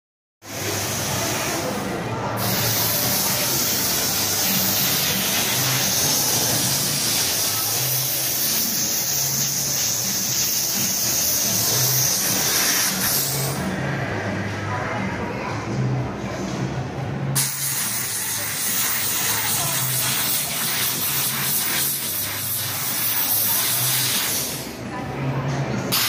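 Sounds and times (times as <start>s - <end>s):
steam cleaner hissing: 2.4s - 13.6s, 17.4s - 24.7s.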